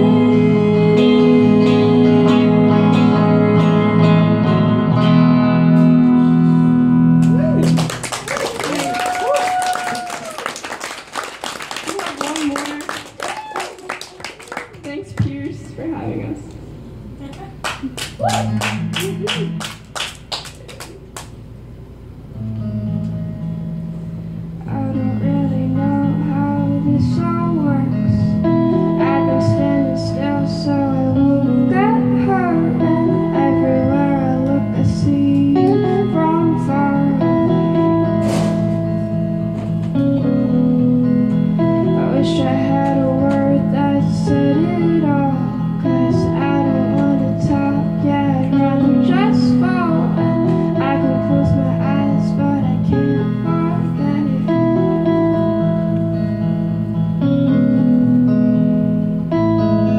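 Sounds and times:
woman singing into a microphone: 0.0 - 4.0, 24.6 - 38.0, 41.8 - 55.1
two guitars playing live: 0.0 - 59.9.

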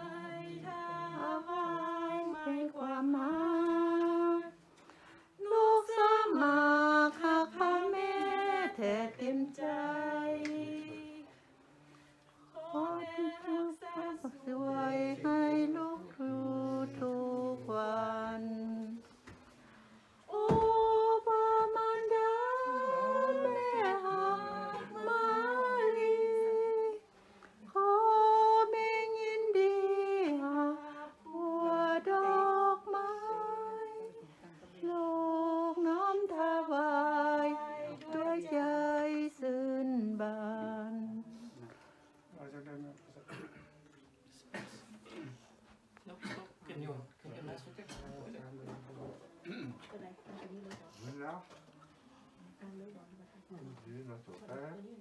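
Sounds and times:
women singing a hymn unaccompanied: 0.0 - 41.7.

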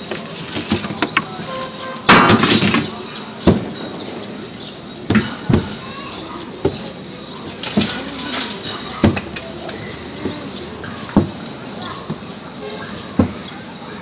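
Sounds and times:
knocks and thuds on steel: 2.1 - 3.8.

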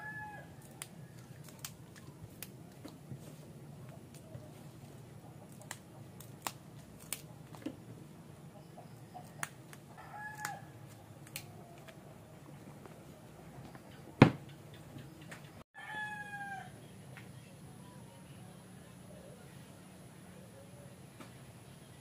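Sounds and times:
beans snapping by hand: 0.6 - 3.0, 5.4 - 7.8, 9.2 - 12.0.

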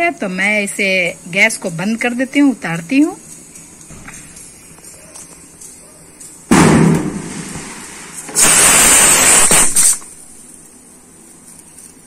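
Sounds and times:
pressure cooker steam hissing: 8.2 - 10.0.

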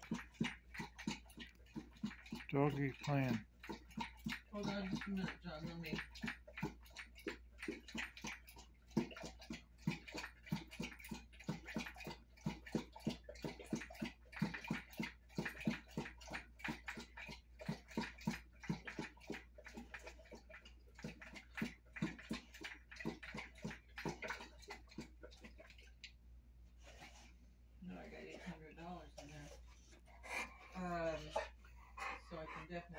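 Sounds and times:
dog lapping water: 0.0 - 32.9.

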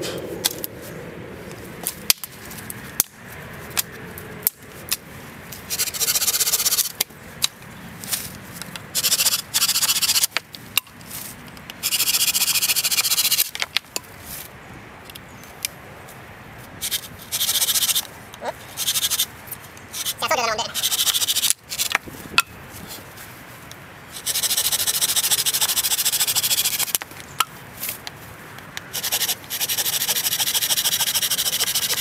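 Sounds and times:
axe blade scraping wood: 19.9 - 20.2, 20.8 - 22.0, 29.0 - 32.0.

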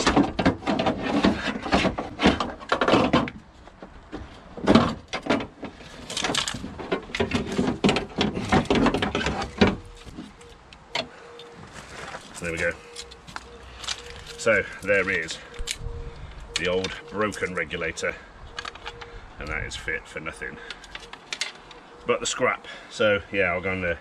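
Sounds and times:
metal rails clattering and scraping: 0.0 - 15.8.

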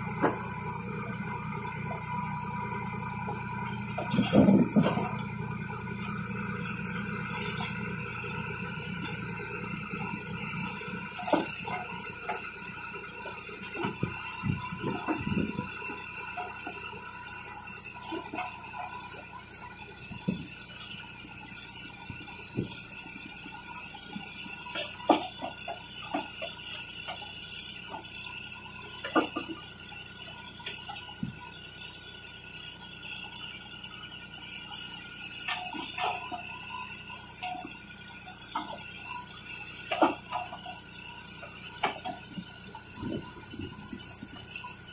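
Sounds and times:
backhoe bucket clanks: 0.0 - 21.0, 22.2 - 31.4, 35.4 - 44.9
diesel tractor running: 0.0 - 44.9
hydraulic whine: 0.0 - 44.9.

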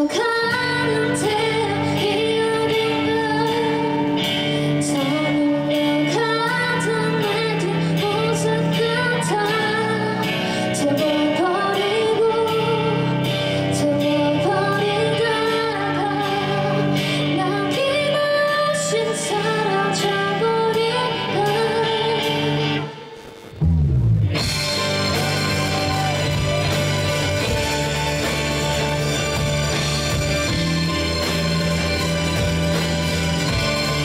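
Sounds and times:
woman singing lead: 0.0 - 23.4
live band playing: 0.0 - 34.0.

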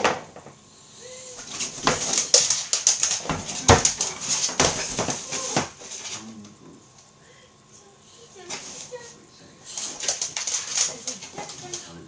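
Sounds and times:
dog bed frame knocking on floor: 0.0 - 0.5, 1.4 - 5.7
dog scrabbling: 1.4 - 6.2, 9.7 - 12.0.

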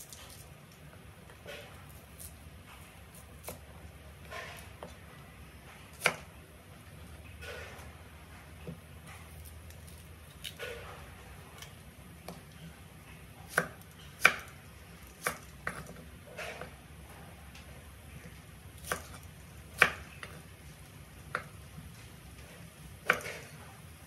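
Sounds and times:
knife chopping on cutting board: 5.9 - 6.3, 13.4 - 14.5, 15.1 - 16.8, 18.8 - 20.5, 23.0 - 23.6.

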